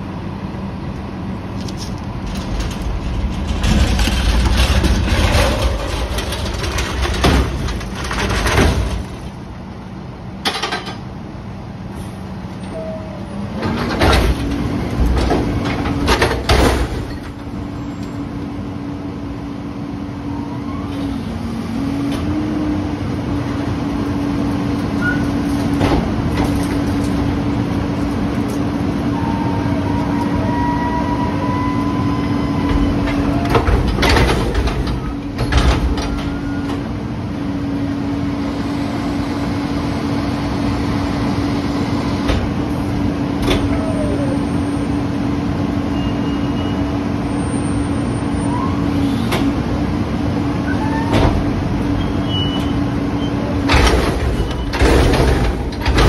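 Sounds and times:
truck engine running: 0.0 - 11.6
metal clanks and bangs: 2.1 - 9.4, 13.7 - 17.6, 32.7 - 36.6, 53.7 - 56.0.

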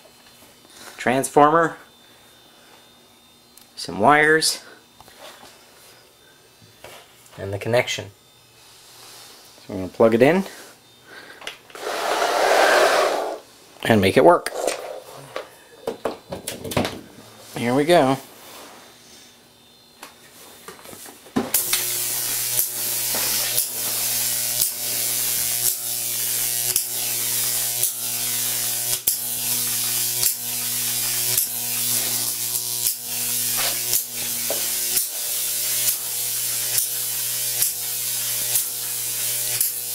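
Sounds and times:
mains hum: 0.0 - 39.9
electric arc buzz: 11.1 - 13.5, 21.5 - 39.9
electric arc snapping: 21.5 - 39.9.

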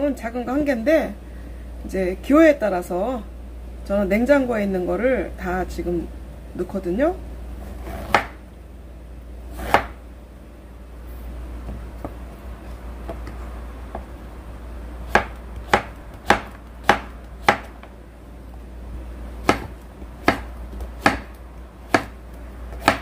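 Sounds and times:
knife chopping on wooden board: 7.8 - 8.4, 9.5 - 10.0, 15.1 - 17.8, 19.4 - 23.0.

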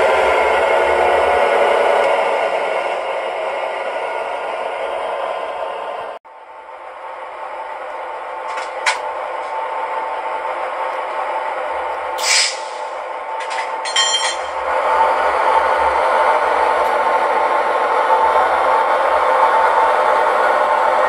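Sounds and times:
short air hiss: 12.2 - 12.9.

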